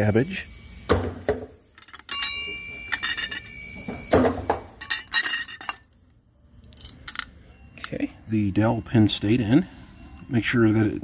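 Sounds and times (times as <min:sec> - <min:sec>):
metal parts clinking: 0:01.7 - 0:06.0, 0:06.6 - 0:07.4.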